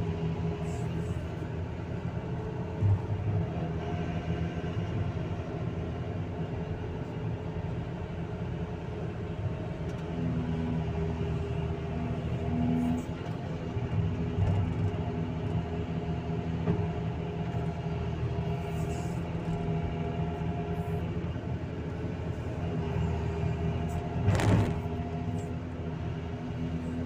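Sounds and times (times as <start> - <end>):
excavator diesel engine running: 0.0 - 27.0
bucket crunching and scraping earth: 24.2 - 25.0.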